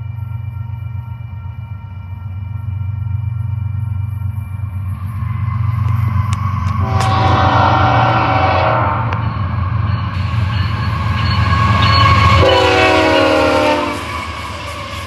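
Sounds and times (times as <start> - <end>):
diesel locomotive rumble: 0.0 - 15.0
locomotive air horn blasts: 6.8 - 9.2, 12.4 - 14.1.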